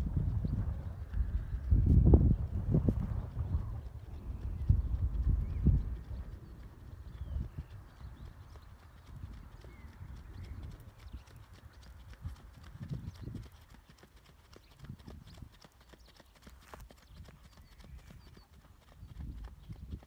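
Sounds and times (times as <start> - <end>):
horse hoofbeats: 0.0 - 20.0.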